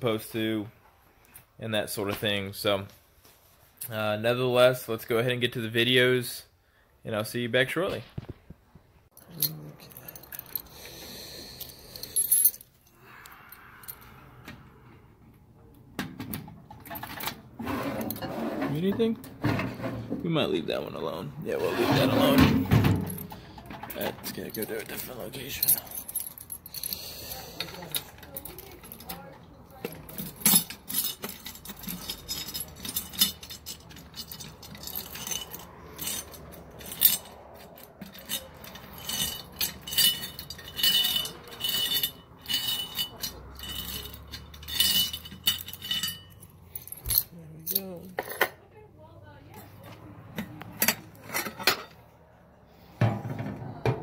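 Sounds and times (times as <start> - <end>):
key rattles: 23.0 - 48.0
keys clicking against metal lock: 23.0 - 48.0.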